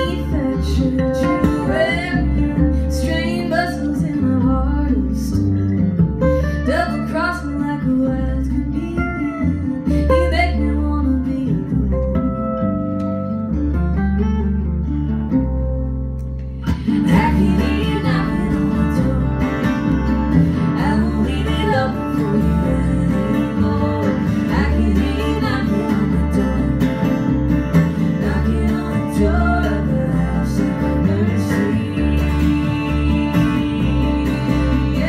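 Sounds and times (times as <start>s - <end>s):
acoustic guitars: 0.0s - 35.0s
plucked upright bass: 0.0s - 35.0s.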